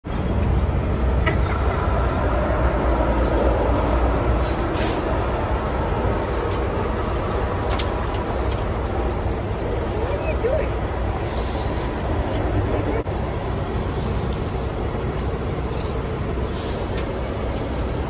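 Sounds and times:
city street traffic rumble: 0.0s - 18.0s
short hiss: 4.7s - 5.1s.

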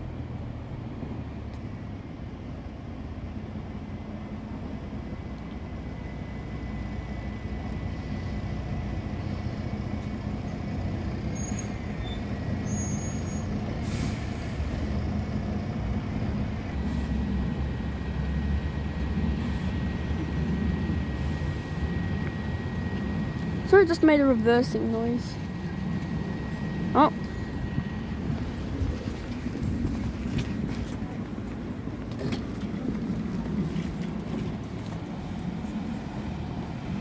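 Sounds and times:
bus engine rumble: 0.0s - 37.0s
air brakes hissing: 11.3s - 15.0s, 16.8s - 17.3s
faint high whine: 16.6s - 31.9s.

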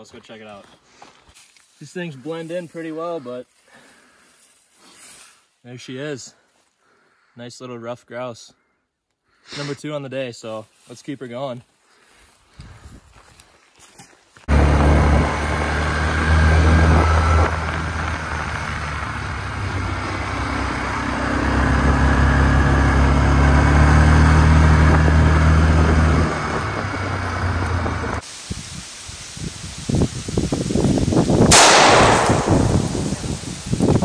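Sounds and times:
wind: 0.0s - 34.0s
tyres on gravel: 13.1s - 28.3s
atv engine running: 14.5s - 28.2s.

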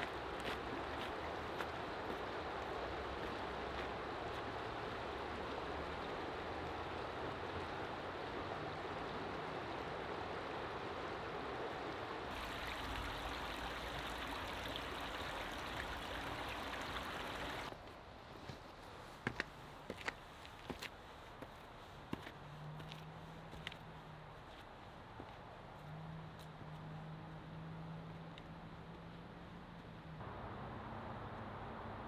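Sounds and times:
river water rushing over rocks: 3.1s - 17.7s.

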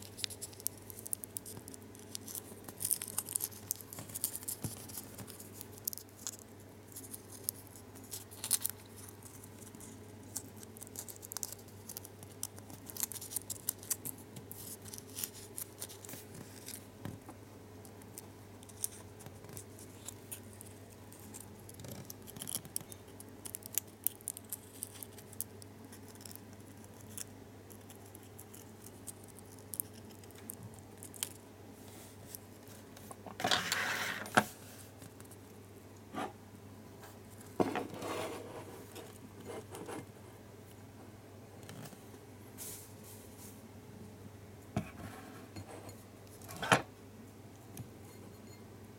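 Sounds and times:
foil wrapper crinkling: 0.0s - 16.8s.

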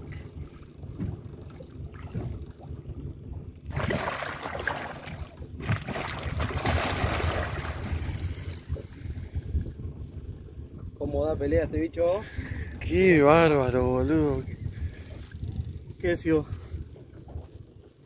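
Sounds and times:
wind rumbling on microphone: 0.0s - 18.0s
fish splashing at water surface: 3.7s - 8.6s.

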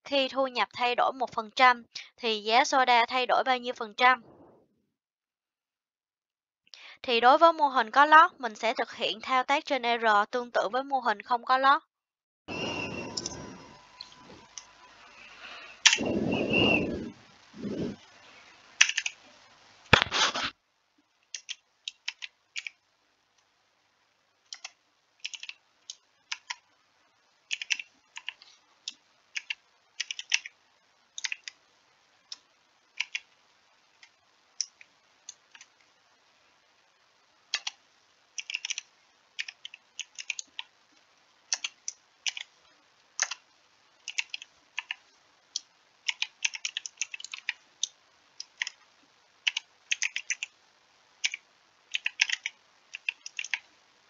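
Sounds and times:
computer keyboard typing: 18.8s - 19.2s, 21.3s - 22.8s, 24.5s - 26.6s, 27.5s - 30.5s, 31.2s - 31.6s, 33.0s - 33.3s, 34.6s - 35.7s, 37.5s - 37.8s, 38.4s - 40.7s, 41.5s - 42.5s, 43.2s - 43.4s, 44.0s - 45.0s, 46.0s - 48.8s, 49.4s - 50.5s, 51.2s - 53.7s.

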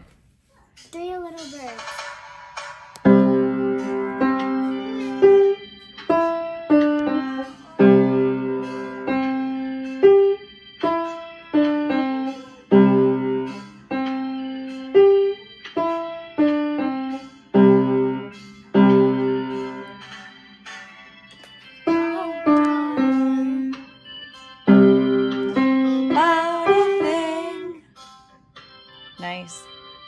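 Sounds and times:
piano notes: 1.8s - 21.1s, 21.8s - 29.9s.

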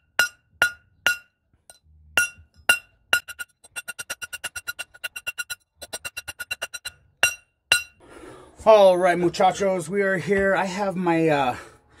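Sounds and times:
hammer striking metal bar: 0.0s - 8.0s.

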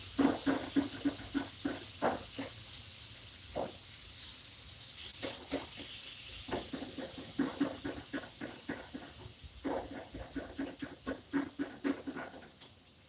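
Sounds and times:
spatula scraping frying pan: 0.0s - 2.8s, 5.0s - 12.7s.

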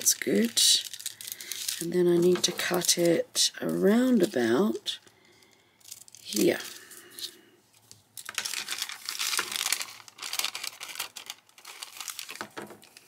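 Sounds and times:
scissors cutting crinkly paper: 0.0s - 4.9s, 8.2s - 13.0s.

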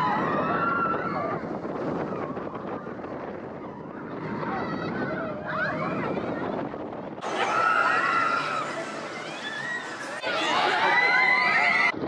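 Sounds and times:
roller coaster cars on track: 0.0s - 12.0s
wind rushing over microphone: 0.0s - 12.0s
riders shrieking and whooping: 7.2s - 12.0s.

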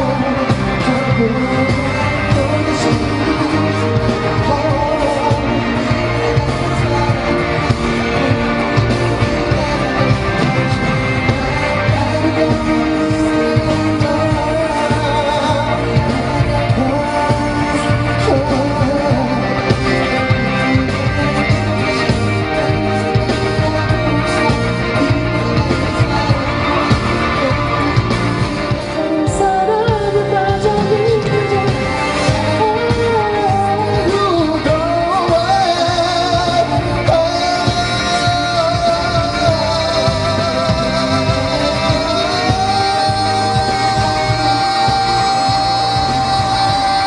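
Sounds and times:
band with steady beat: 0.0s - 47.0s
man singing pop song: 0.0s - 47.0s.

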